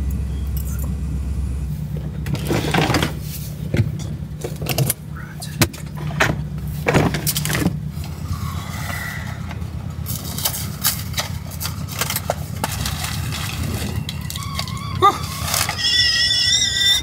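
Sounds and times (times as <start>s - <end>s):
diesel engine idling: 0.0s - 17.0s
cereal box crinkling and rustling: 10.2s - 16.2s.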